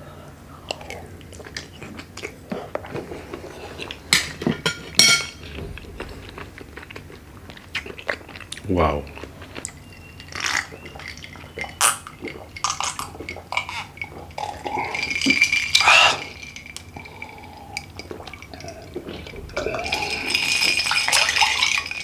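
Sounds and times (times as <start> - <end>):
liquid sloshing: 0.8 - 22.0
ice cubes clinking against glass: 10.3 - 18.8, 19.5 - 22.0
person swallowing: 17.0 - 21.7.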